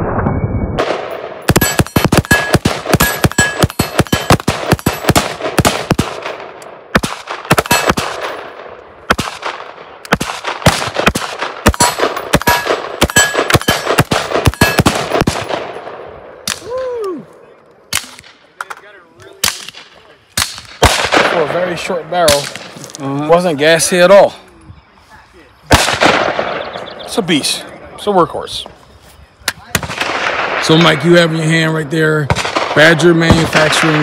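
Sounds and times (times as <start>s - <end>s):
short falling whine: 0.0s - 0.8s
rifle gunshots: 0.8s - 16.6s, 19.4s - 22.8s, 25.7s - 26.8s, 29.7s - 31.2s, 32.2s - 34.0s.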